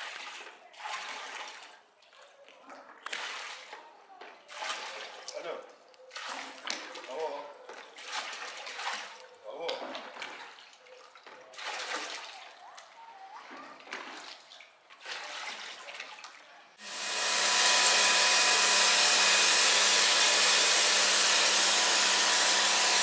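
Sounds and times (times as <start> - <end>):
faint water sounds: 0.0 - 16.8.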